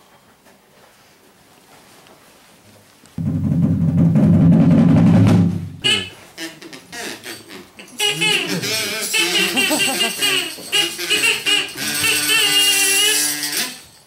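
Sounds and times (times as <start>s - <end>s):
deep drum roll: 3.2s - 5.8s.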